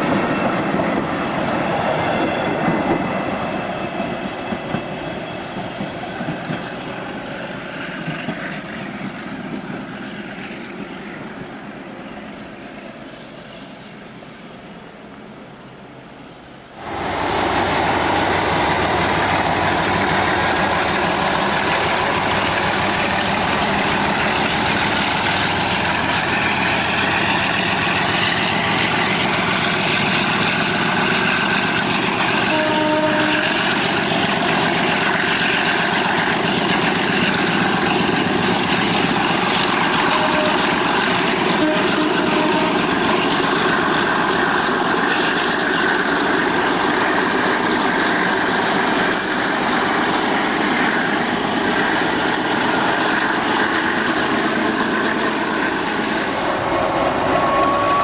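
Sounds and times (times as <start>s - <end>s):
diesel locomotive engine running: 15.2s - 58.0s
short thin pitched tone: 56.1s - 58.0s.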